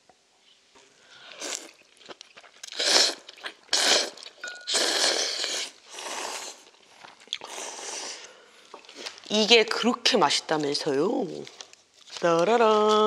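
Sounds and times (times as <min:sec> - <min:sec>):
loud noodle slurps: 0:01.3 - 0:01.9, 0:02.6 - 0:08.3.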